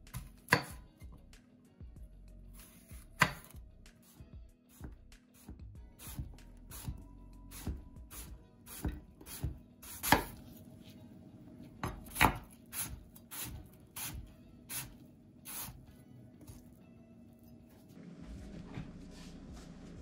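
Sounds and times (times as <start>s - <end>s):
knife chopping on wooden board: 0.1s - 0.8s, 2.9s - 3.5s, 8.8s - 10.4s, 11.8s - 14.2s.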